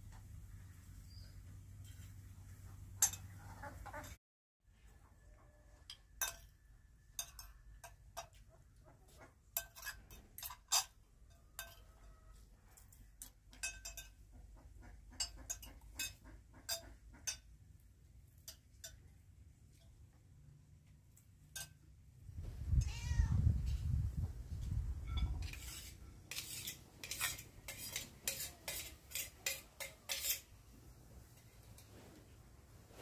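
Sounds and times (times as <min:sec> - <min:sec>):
spoons clinking on plates: 0:03.0 - 0:03.4, 0:05.9 - 0:08.5, 0:09.5 - 0:14.2, 0:15.1 - 0:17.6, 0:18.3 - 0:20.0, 0:21.4 - 0:21.9, 0:25.0 - 0:30.5.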